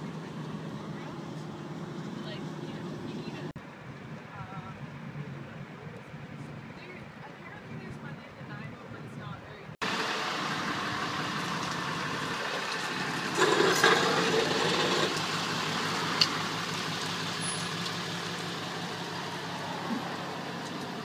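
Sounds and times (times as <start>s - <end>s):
tow truck engine running: 9.8s - 21.0s.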